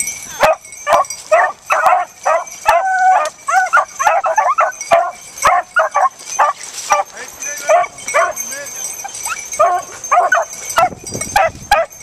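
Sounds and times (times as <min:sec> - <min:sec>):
dogs yipping and whining: 0:00.3 - 0:07.1, 0:07.7 - 0:12.0.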